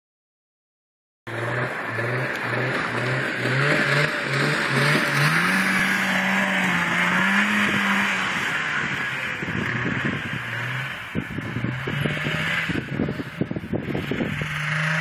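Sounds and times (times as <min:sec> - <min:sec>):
snowmobile engine passing: 0:01.3 - 0:15.0.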